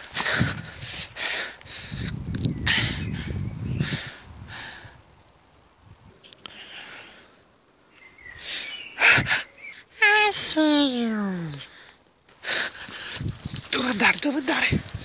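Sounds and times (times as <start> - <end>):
person breathing hard: 0.1 - 5.0, 6.5 - 7.5.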